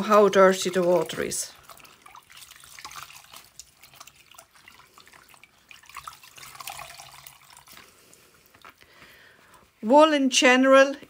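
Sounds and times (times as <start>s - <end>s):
water running off wool: 0.0s - 8.8s
water sloshing in a bowl: 0.0s - 8.8s.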